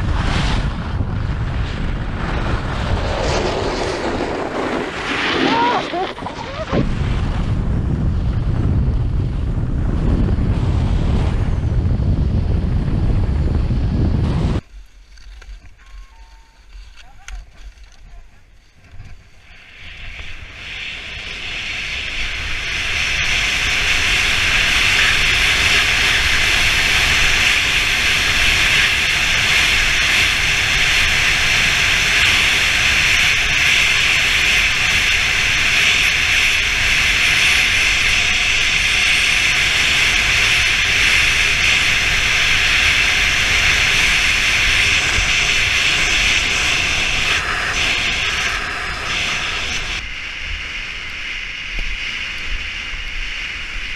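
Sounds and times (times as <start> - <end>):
wind rushing over microphone: 0.0 - 14.7, 18.4 - 53.9
skis hissing on snow: 3.0 - 7.1, 18.4 - 50.1.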